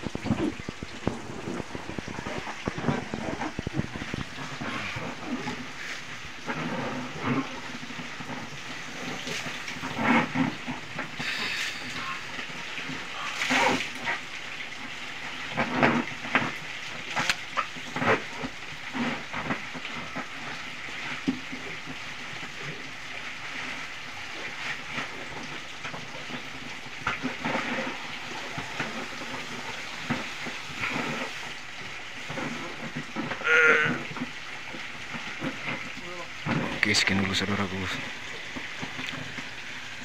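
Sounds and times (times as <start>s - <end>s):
steady hiss: 0.0s - 17.0s.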